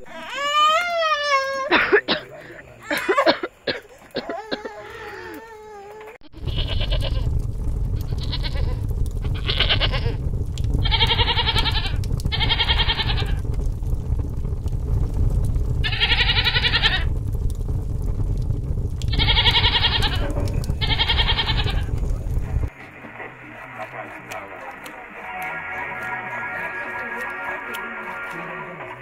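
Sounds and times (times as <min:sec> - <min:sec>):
infant crying: 0:00.0 - 0:01.7, 0:04.2 - 0:06.2
livestock bleating: 0:06.4 - 0:07.2
steady low rumble: 0:06.4 - 0:29.0.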